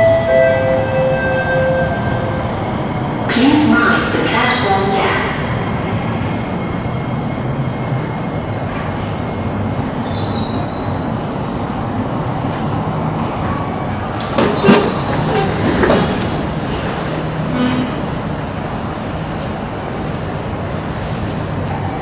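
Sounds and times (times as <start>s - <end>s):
train rumbling along track: 0.0s - 22.0s
high wheel squeal: 10.0s - 12.3s.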